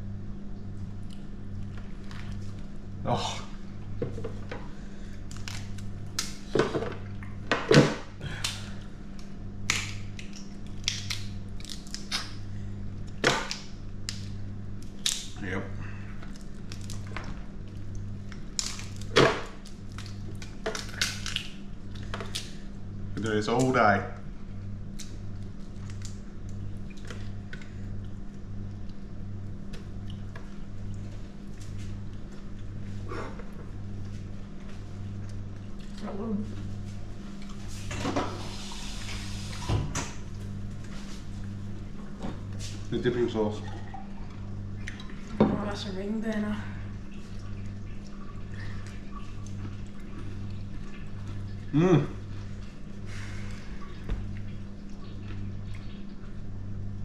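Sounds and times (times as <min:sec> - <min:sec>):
steady low hum: 0:00.0 - 0:57.0
shells cracking and snapping: 0:05.3 - 0:06.6, 0:08.3 - 0:12.4, 0:13.0 - 0:15.4, 0:16.2 - 0:17.2, 0:17.8 - 0:22.6, 0:24.9 - 0:27.7.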